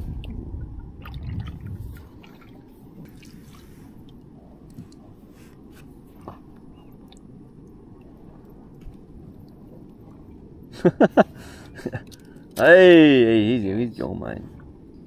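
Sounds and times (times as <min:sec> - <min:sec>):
low steady rumble: 0:00.0 - 0:15.0
water dripping and splashing: 0:01.0 - 0:04.2.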